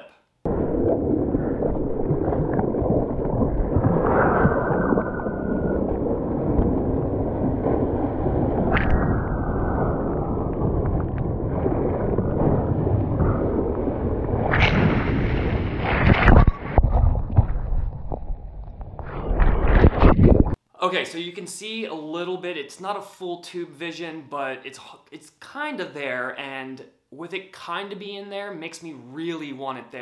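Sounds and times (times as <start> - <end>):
wave crashing: 0.5 - 18.1.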